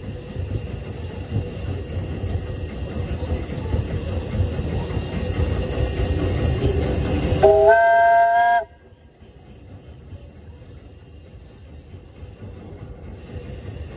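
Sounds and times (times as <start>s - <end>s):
steam locomotive rumbling: 0.0s - 13.9s
steam whistle chord: 7.4s - 8.8s.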